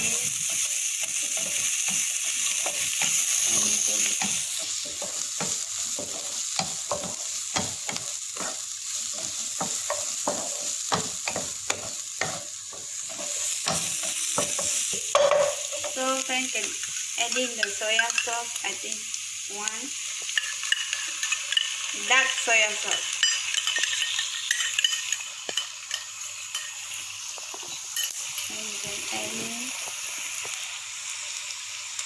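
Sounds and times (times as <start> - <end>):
food sizzling in hot oil: 0.0 - 32.0
wooden spatula stirring and scraping: 0.1 - 15.1.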